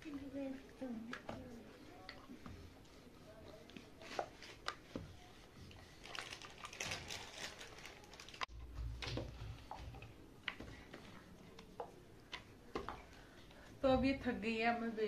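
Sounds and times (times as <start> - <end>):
rolling pin on a board: 1.1 - 5.8.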